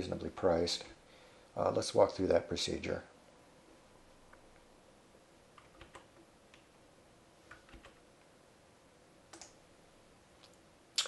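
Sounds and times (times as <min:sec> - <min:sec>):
keyboard and mouse clicks: 0:05.6 - 0:06.7, 0:07.5 - 0:08.0, 0:09.3 - 0:09.6.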